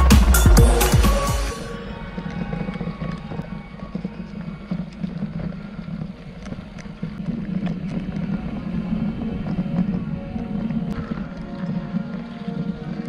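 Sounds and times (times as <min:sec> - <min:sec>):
bike tyre rumble on dirt: 0:01.8 - 0:13.0
faint background music: 0:06.9 - 0:13.0.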